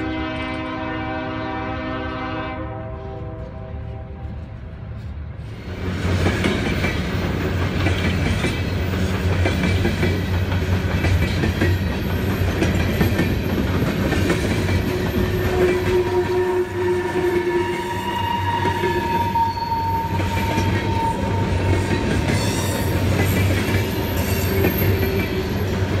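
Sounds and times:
wheels squealing: 17.7 - 26.0.

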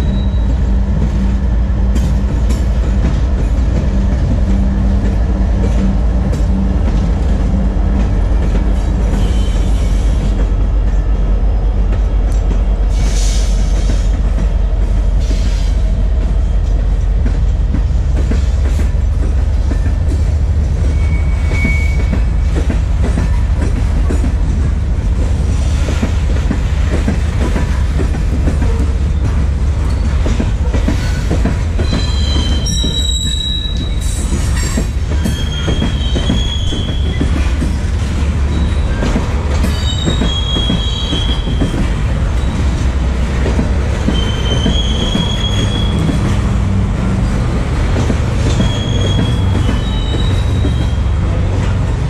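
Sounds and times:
diesel locomotive rumble: 0.0 - 52.0
train wheels clicking over rails: 0.0 - 52.0
high wheel squeal: 20.8 - 22.3, 30.9 - 37.6, 38.4 - 42.7, 44.1 - 46.4, 48.4 - 51.1.

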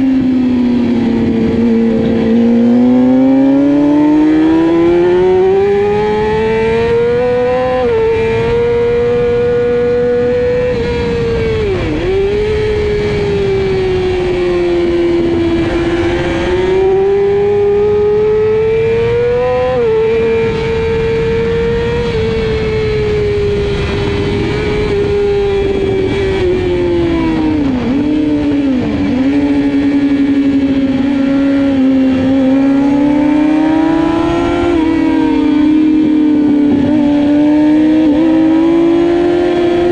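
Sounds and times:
motorcycle engine revving: 0.0 - 39.9
wind rush: 0.0 - 39.9.

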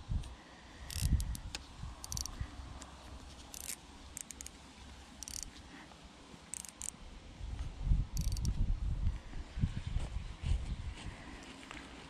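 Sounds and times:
fishing reel cranking grind: 0.9 - 1.4, 2.0 - 2.3, 3.5 - 4.5, 5.2 - 5.5, 6.5 - 6.9, 8.2 - 8.5.

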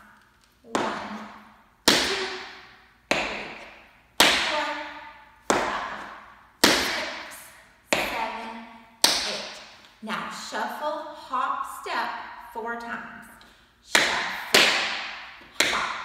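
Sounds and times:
tap shoes on wooden floor: 0.4 - 1.3, 1.9 - 4.8, 7.9 - 8.4, 14.0 - 16.0.

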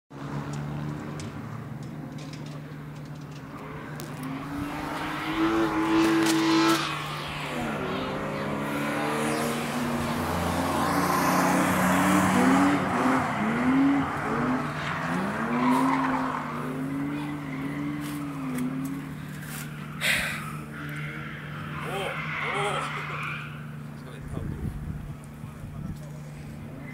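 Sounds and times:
car engine revving: 0.1 - 26.9
tyres squealing on tarmac: 12.4 - 24.1.

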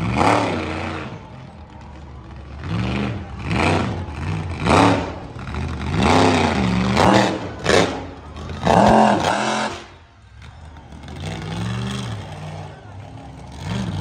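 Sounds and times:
monster truck engine revving: 0.0 - 14.0.

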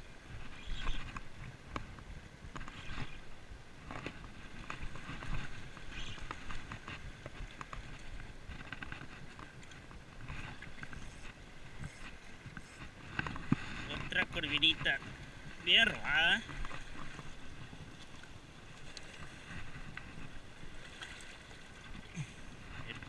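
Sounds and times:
water sloshing against rocks: 0.1 - 23.0.

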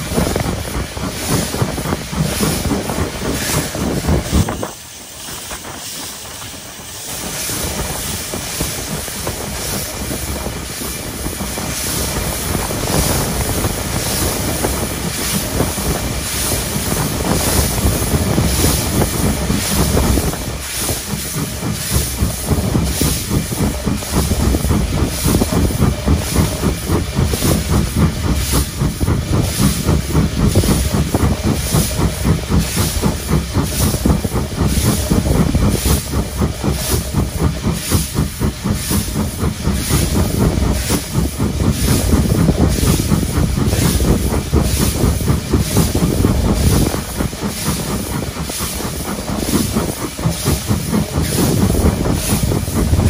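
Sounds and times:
steam locomotive exhaust chuffs: 0.0 - 53.0
wheels rumbling on rails: 0.0 - 53.0.

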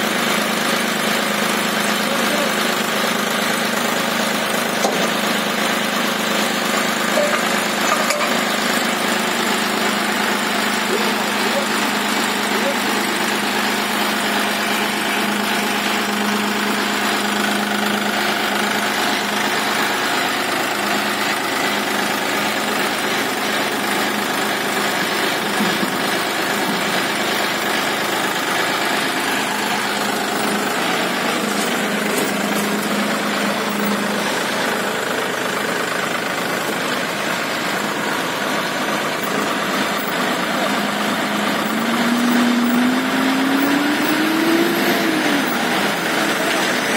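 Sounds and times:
tractor diesel engine idling: 0.0 - 46.9.

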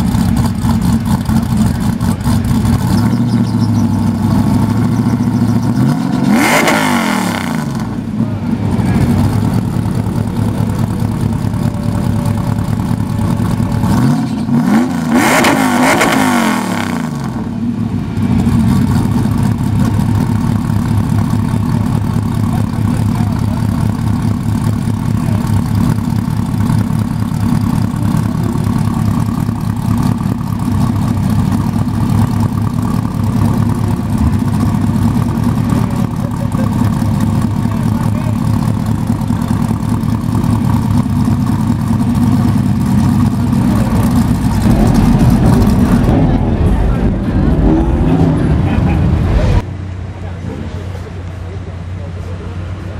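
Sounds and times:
engine revving surge: 0.0 - 10.7, 12.8 - 20.2, 39.1 - 50.0
truck engine idling: 0.0 - 15.9, 17.2 - 52.9.

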